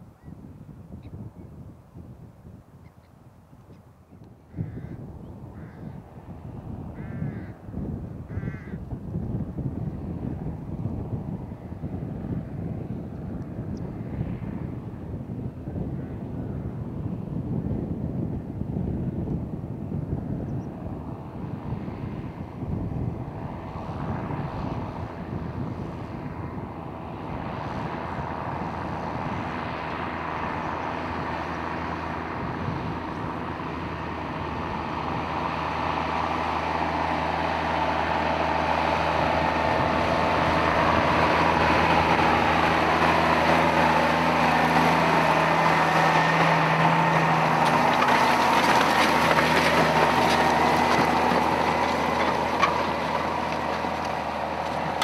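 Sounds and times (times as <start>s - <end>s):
tractor diesel engine pulling hard: 4.5s - 55.0s.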